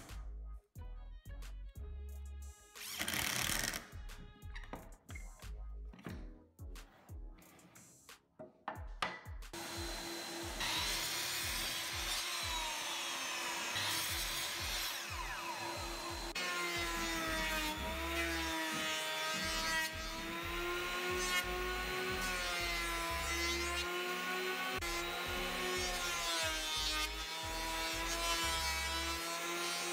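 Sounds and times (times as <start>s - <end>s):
miter saw cutting wood: 9.6s - 29.9s
power tool motor hum: 9.6s - 29.9s.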